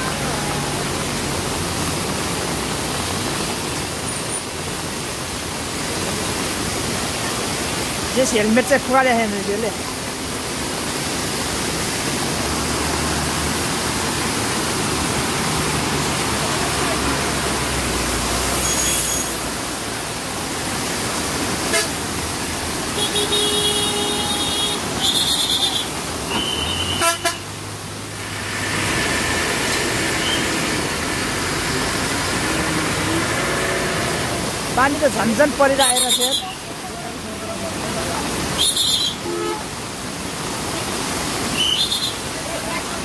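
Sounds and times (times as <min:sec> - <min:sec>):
rain: 0:00.0 - 0:43.0
rushing floodwater: 0:00.0 - 0:43.0
vehicle horns honking: 0:21.7 - 0:22.0, 0:22.9 - 0:27.5, 0:38.6 - 0:39.8.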